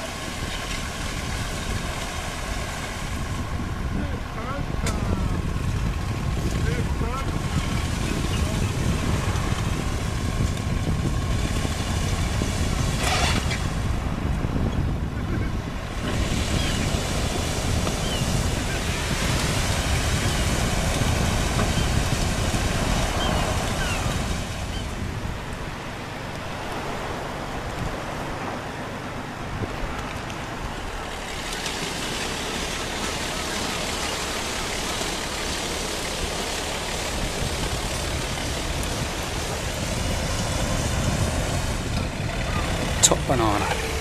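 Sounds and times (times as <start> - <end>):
wind rumbling on microphone: 0.0 - 44.0
small waves on shingle beach: 15.8 - 25.2.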